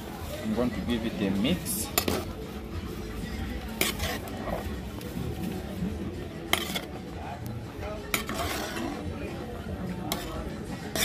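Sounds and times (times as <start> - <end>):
ladle scraping a metal pot: 1.3 - 2.4, 3.5 - 5.5, 6.4 - 7.2, 8.0 - 11.0.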